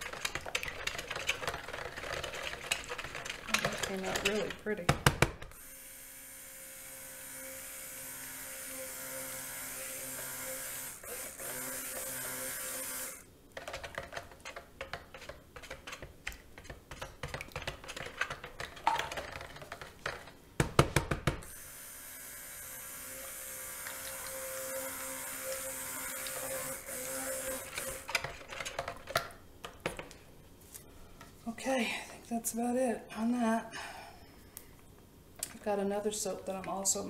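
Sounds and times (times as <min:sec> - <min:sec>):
stick blender running: 0:21.5 - 0:28.2.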